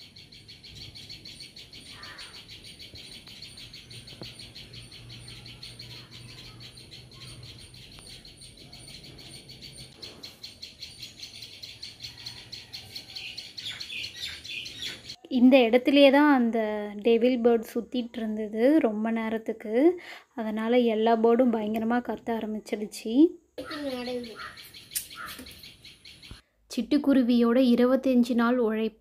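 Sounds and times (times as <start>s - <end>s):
small birds alarm chirping: 0.0s - 15.2s, 23.6s - 26.4s.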